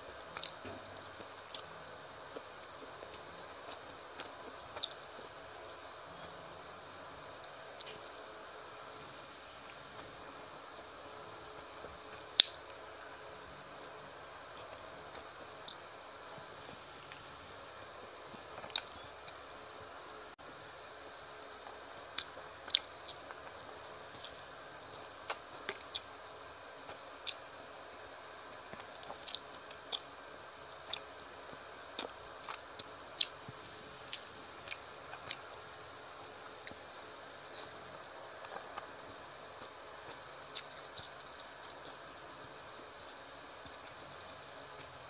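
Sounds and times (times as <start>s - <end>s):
wet chewing clicks and smacks: 40.5s - 41.8s.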